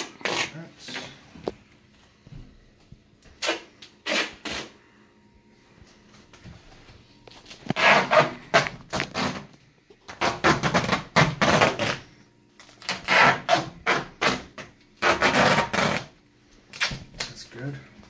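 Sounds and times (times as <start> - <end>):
duct tape ripping off roll: 0.0 - 1.1, 3.4 - 4.7, 7.5 - 9.5, 10.1 - 12.0, 12.6 - 17.4.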